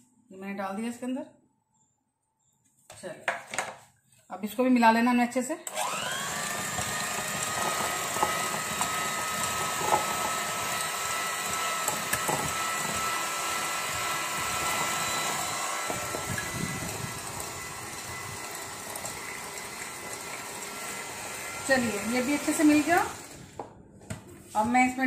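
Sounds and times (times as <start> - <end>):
electric hand mixer whining: 5.7 - 23.6
beaters whisking batter: 6.3 - 23.4.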